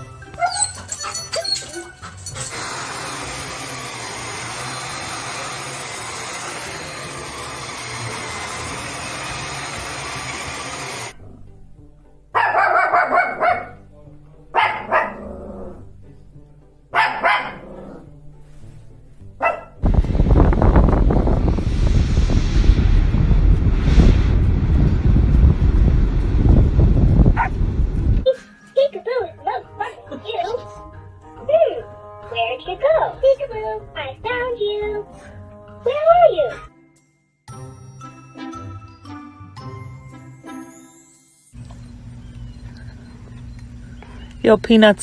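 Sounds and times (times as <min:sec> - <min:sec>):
vacuum cleaner running: 0:02.5 - 0:11.2
dogs barking: 0:12.3 - 0:13.8, 0:14.5 - 0:15.5, 0:16.9 - 0:18.0, 0:19.4 - 0:19.8
wind buffeting microphone: 0:19.8 - 0:28.3.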